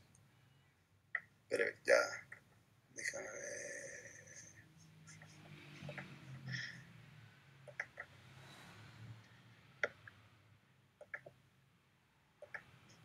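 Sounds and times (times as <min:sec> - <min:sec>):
computer mouse clicks: 0:07.7 - 0:08.1, 0:09.8 - 0:10.2, 0:11.0 - 0:11.4, 0:12.4 - 0:13.0.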